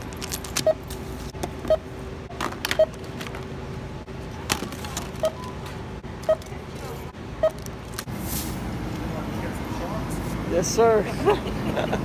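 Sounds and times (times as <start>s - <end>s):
barcode scanner beeping: 5.2s - 5.6s, 6.2s - 6.6s, 7.4s - 7.7s.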